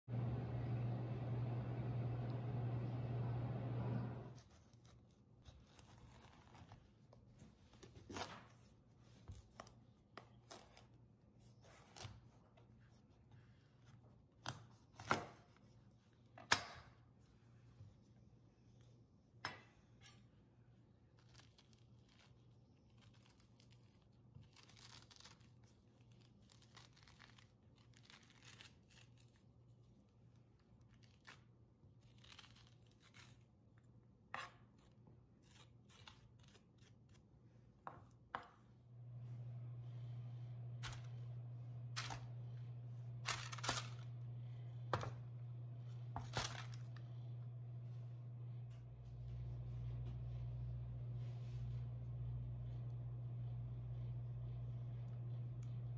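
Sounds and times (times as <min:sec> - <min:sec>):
steady low hum: 0:00.1 - 0:04.4, 0:38.8 - 0:55.9.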